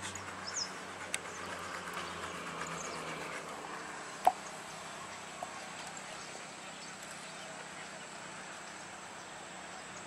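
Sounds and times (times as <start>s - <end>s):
faint outdoor background: 0.0s - 10.0s.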